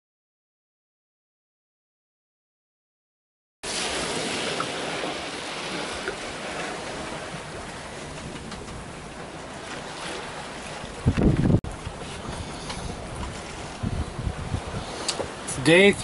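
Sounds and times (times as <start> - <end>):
choppy sea rushing: 3.6 - 16.0
wind: 3.6 - 16.0.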